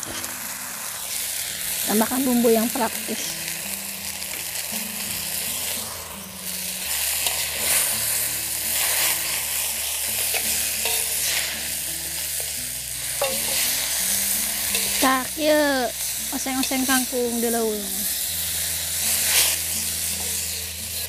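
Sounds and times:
greens sizzling in a pan: 0:00.0 - 0:21.0
spatula scraping a pan: 0:04.6 - 0:15.4, 0:16.0 - 0:21.0.

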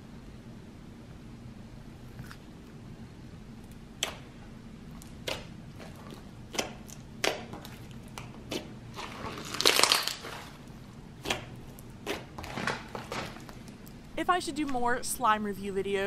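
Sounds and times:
slime popping and squelching: 0:03.6 - 0:13.8.

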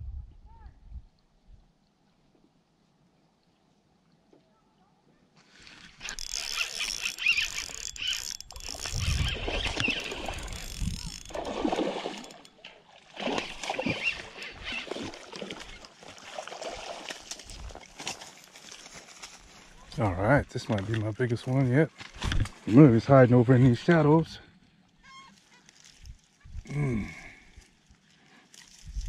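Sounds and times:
fish splashing at water surface: 0:05.7 - 0:18.0.

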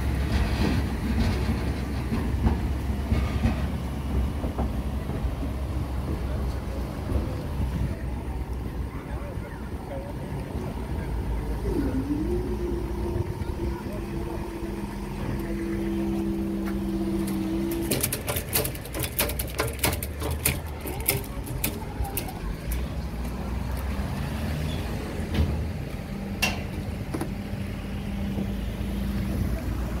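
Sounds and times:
steady two-note hum: 0:11.5 - 0:17.8
car wheels clicking over level crossing: 0:14.6 - 0:23.8.

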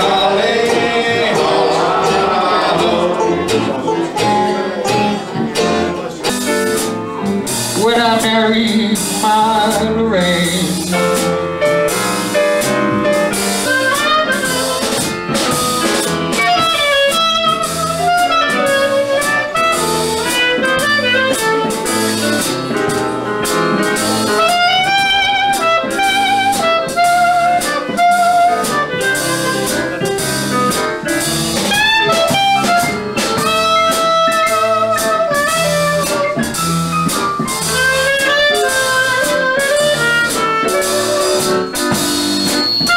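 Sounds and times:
double bass: 0:00.0 - 0:42.9
drum kit beat: 0:00.0 - 0:42.9
clarinet melody with vibrato: 0:13.4 - 0:15.1, 0:16.3 - 0:22.8, 0:23.6 - 0:30.2, 0:31.6 - 0:42.9.

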